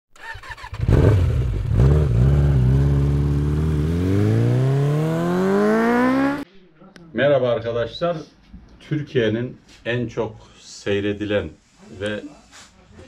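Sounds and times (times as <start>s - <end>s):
engine revving: 0.2s - 6.4s.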